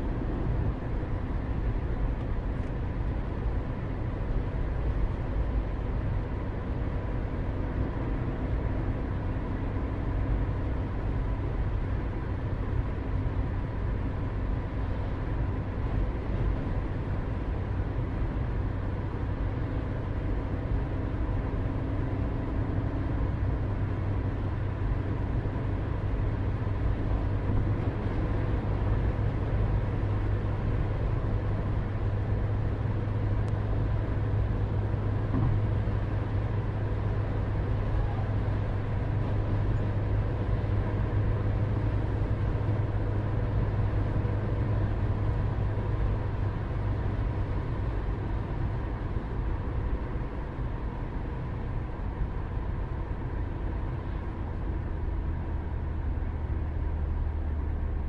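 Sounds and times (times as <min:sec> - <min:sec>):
distant engine rumble: 0:20.0 - 0:58.0.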